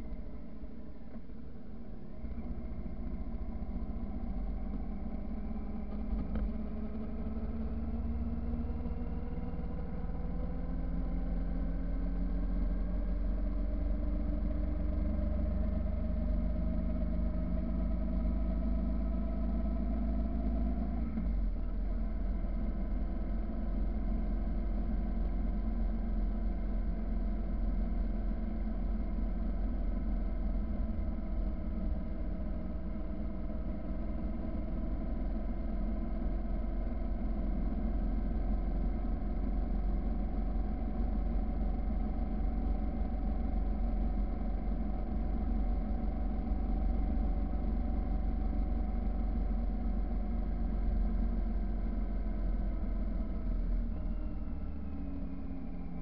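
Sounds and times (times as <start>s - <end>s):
wind and road rumble: 0.0s - 27.4s.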